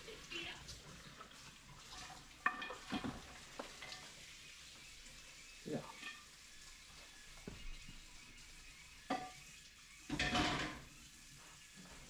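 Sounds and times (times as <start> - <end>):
metal pots and lids clanking: 2.0 - 4.0, 10.1 - 10.9.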